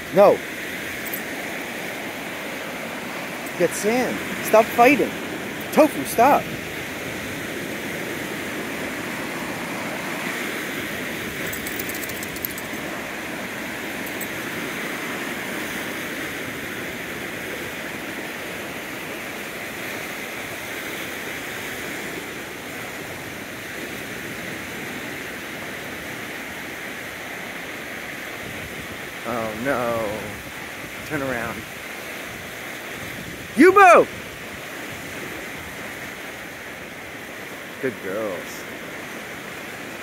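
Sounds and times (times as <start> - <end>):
ocean surf washing onto beach: 0.0 - 40.0.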